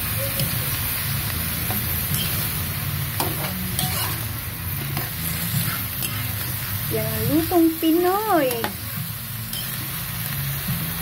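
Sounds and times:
food sizzling in a wok: 0.0 - 11.0
metal spatula scraping pan: 1.7 - 7.0.

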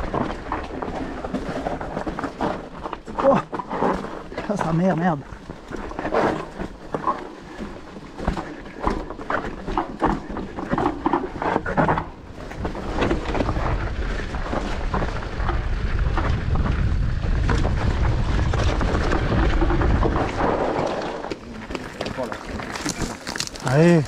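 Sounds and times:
bike frame rattling and knocking: 3.9 - 24.0
wind buffeting microphone: 12.3 - 24.0.

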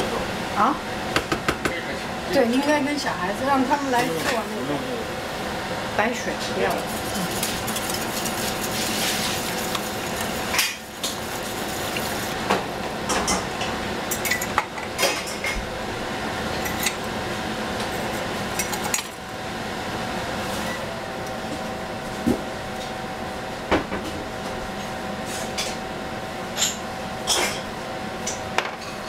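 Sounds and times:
whisk stirring in metal saucepan: 6.4 - 12.5.

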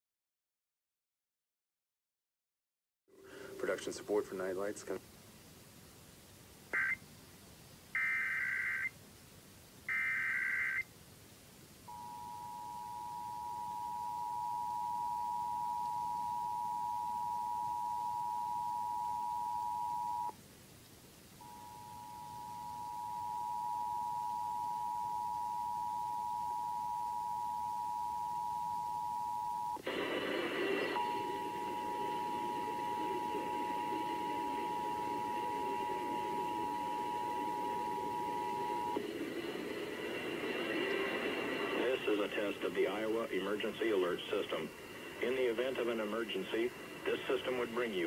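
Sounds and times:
screeching digital header tones: 6.8 - 7.0, 8.0 - 8.9, 9.9 - 10.9
two-tone attention signal: 6.8 - 7.0, 11.9 - 20.3, 21.4 - 29.8, 31.0 - 39.0.

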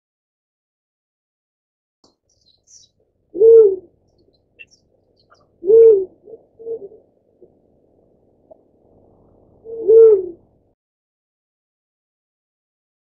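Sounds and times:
dove cooing: 2.7 - 7.6, 8.9 - 10.5.

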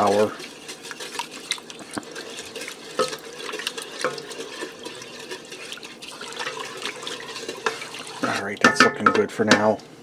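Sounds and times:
spoon stirring liquid sloshing: 0.0 - 9.3
spoon tapping metal pot: 6.4 - 9.7.

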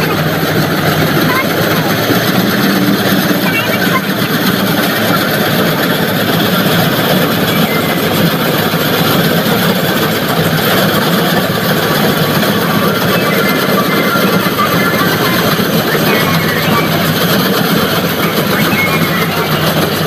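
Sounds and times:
combine harvester diesel engine: 0.0 - 20.0.

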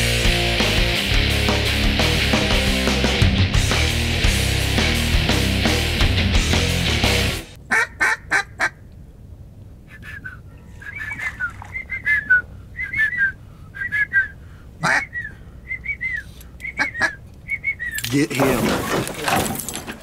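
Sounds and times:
harsh duck calls: 7.6 - 8.8, 14.8 - 15.3, 16.7 - 17.2
ducks whistling calls: 9.9 - 18.0.

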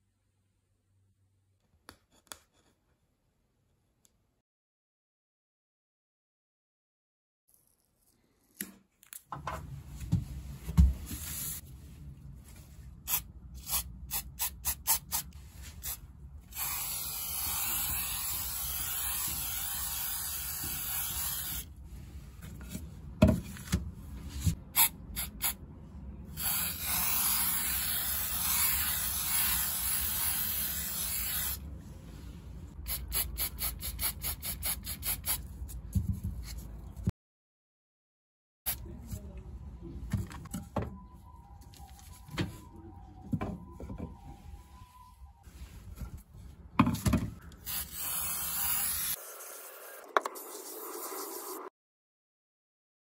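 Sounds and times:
aerosol spray can hissing: 15.8 - 21.6, 26.4 - 31.6, 47.6 - 49.7.

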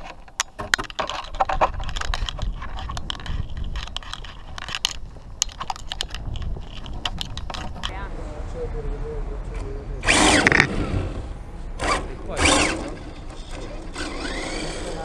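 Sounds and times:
clicks and rattles: 0.0 - 8.0
toy car on rough asphalt: 0.0 - 8.1, 10.0 - 15.0.

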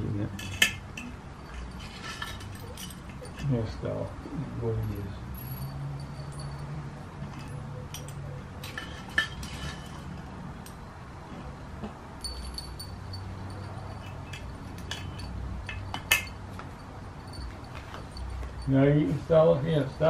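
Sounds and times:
small dishes clinking: 5.4 - 10.8, 12.2 - 18.7.

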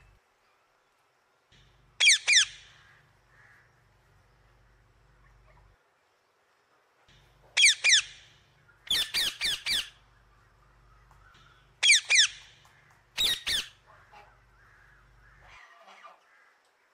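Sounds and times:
macaw squawking: 11.8 - 12.5, 13.2 - 16.6.

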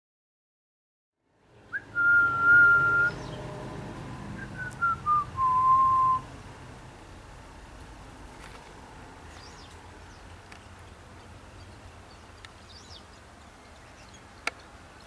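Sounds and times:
person whistling: 1.8 - 3.2, 4.4 - 6.2.

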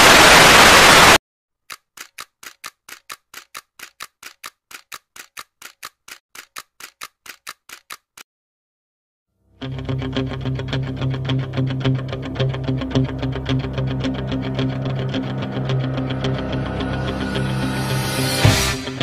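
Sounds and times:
tv static hiss: 0.0 - 1.2
sharp ticks: 1.6 - 8.2.

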